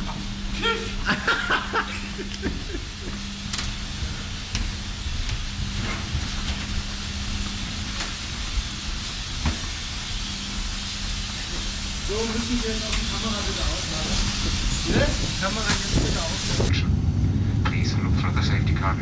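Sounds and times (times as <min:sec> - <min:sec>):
rushing air hiss: 0:00.0 - 0:16.7
constant low hum: 0:00.0 - 0:19.0
low rumble: 0:00.0 - 0:19.0.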